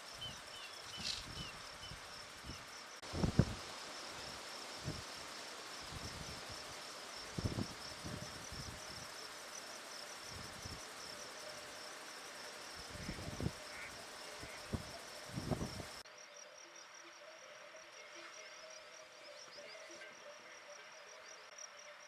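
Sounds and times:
insect trilling: 0.0s - 2.8s.

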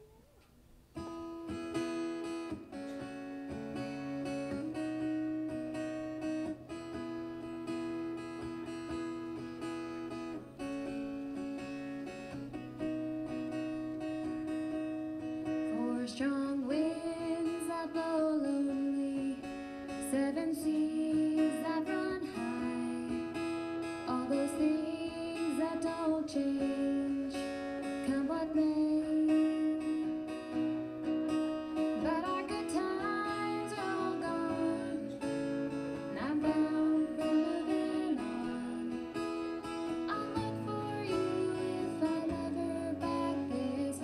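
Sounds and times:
acoustic guitar strumming: 0.1s - 44.0s.

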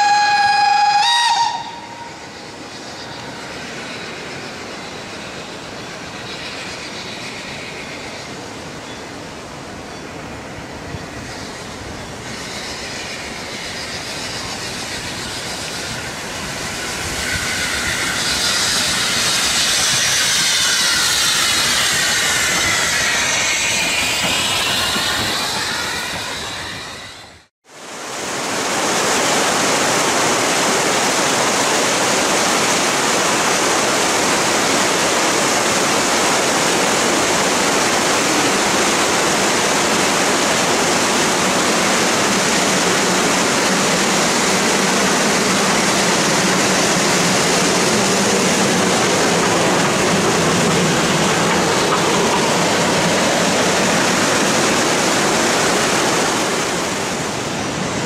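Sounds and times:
water rushing over rocks: 27.7s - 58.0s.

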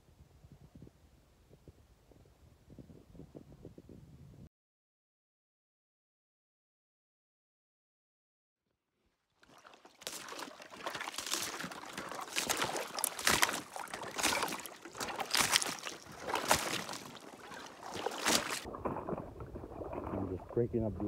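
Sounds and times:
water sloshing: 9.4s - 20.8s
thin ice crunching and cracking: 10.9s - 18.7s.

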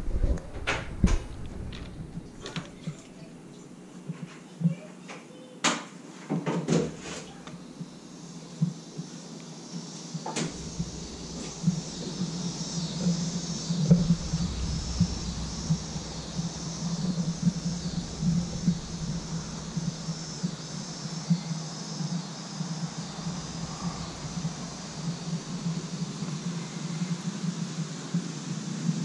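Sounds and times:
faint high chirring: 10.4s - 27.5s.

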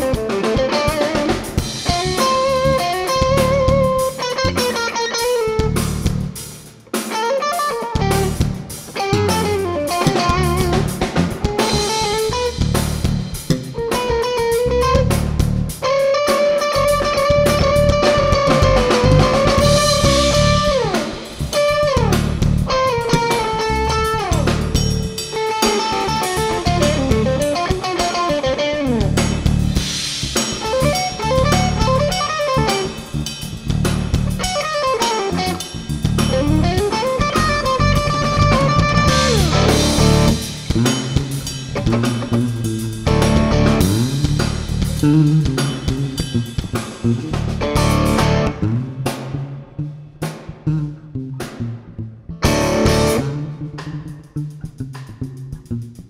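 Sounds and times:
drum kit: 0.0s - 56.0s
electric guitar solo: 1.9s - 5.8s, 7.0s - 12.6s, 15.8s - 22.1s, 22.7s - 29.1s, 30.6s - 33.0s, 34.4s - 35.6s, 36.3s - 40.4s, 47.6s - 49.1s, 52.3s - 53.9s.

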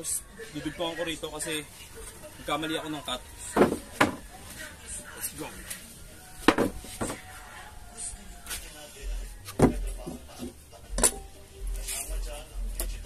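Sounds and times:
plywood knocking on workbench: 3.6s - 4.2s, 6.4s - 7.2s, 9.6s - 10.2s.

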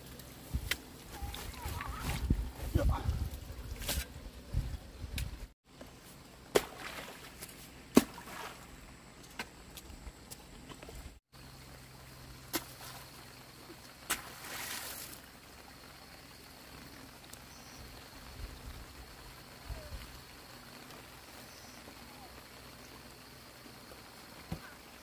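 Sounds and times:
seedling bundles splashing in water: 6.5s - 8.8s, 12.4s - 15.3s.

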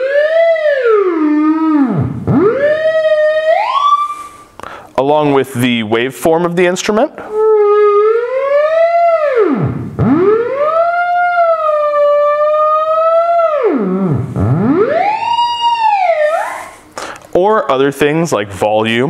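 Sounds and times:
theremin gliding tone: 0.0s - 4.5s, 7.4s - 16.9s.

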